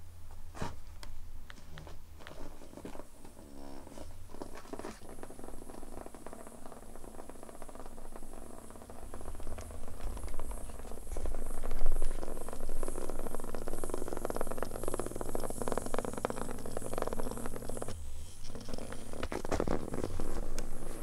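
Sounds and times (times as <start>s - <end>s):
vibrating toy buzzing and rattling: 5.1s - 21.0s.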